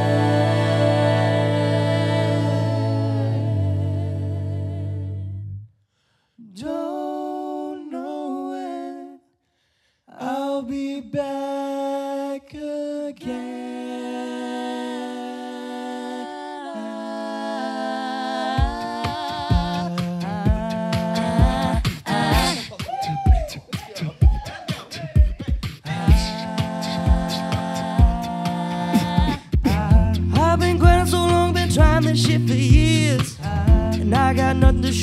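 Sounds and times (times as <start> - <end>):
vocal percussion: 0.0 - 5.4, 10.2 - 35.0
a cappella group singing: 0.0 - 5.6, 6.4 - 9.3, 10.1 - 35.0
sung bass line: 0.0 - 5.6, 18.6 - 22.6, 26.0 - 35.0.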